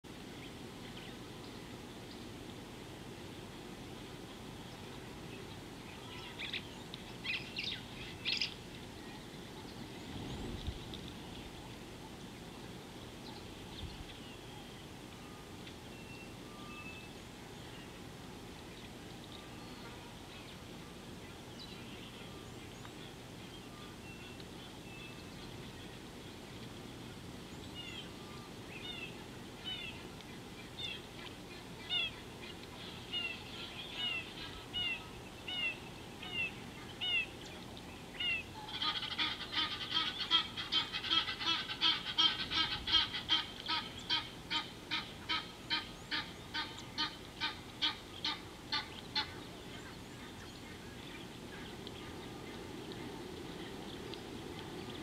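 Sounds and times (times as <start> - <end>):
bird calling: 27.6 - 55.0.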